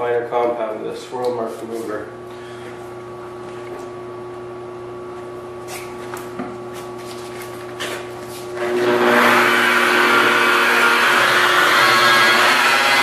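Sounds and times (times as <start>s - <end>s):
car polisher whirring: 8.6s - 13.0s.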